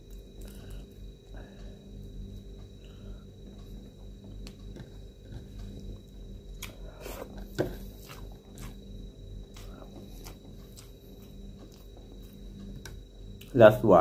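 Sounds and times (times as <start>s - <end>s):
low hum: 0.0s - 14.0s
person chewing and sucking: 6.5s - 12.9s.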